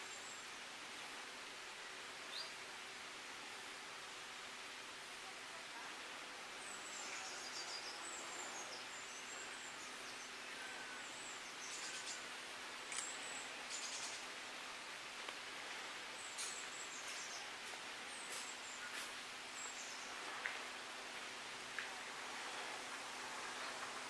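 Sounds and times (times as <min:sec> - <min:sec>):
steady outdoor hiss: 0:00.0 - 0:24.0
distant birds singing: 0:06.4 - 0:21.6.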